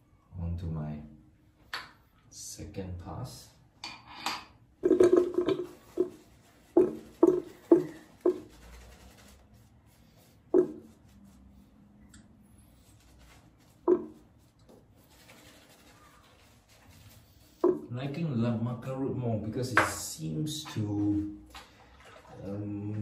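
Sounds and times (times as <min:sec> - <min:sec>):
shaving brush and razor on stubble: 0:05.5 - 0:11.7.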